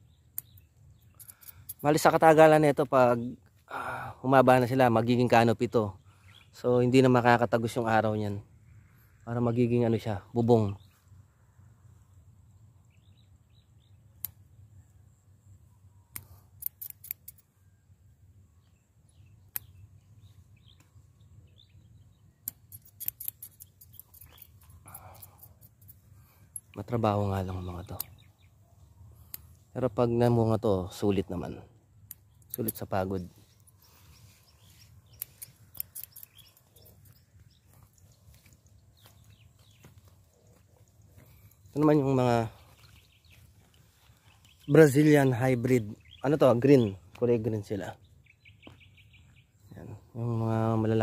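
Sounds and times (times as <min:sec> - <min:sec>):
faint bird chirps: 0:00.0 - 0:51.0
light clicks: 0:16.1 - 0:17.5, 0:29.2 - 0:29.6, 0:32.0 - 0:32.9, 0:35.1 - 0:37.3
pruning shears snipping: 0:35.1 - 0:36.6.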